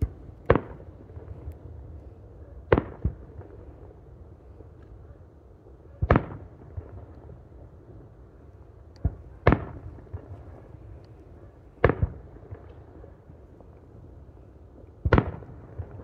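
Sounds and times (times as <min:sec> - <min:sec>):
fireworks booming: 0:00.0 - 0:01.5, 0:11.8 - 0:12.7, 0:15.0 - 0:16.0.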